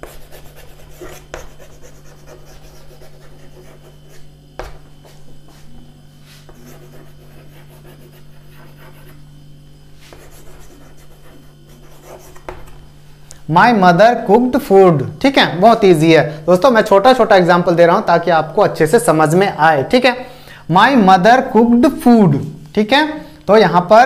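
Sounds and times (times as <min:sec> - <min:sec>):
chalk writing on chalkboard: 0:00.0 - 0:09.3, 0:09.9 - 0:12.7
low electrical hum: 0:00.0 - 0:24.0.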